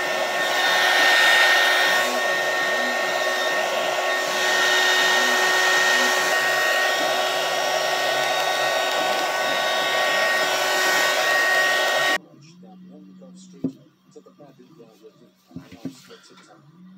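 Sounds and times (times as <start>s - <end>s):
hot-air blower blowing: 0.0s - 12.2s.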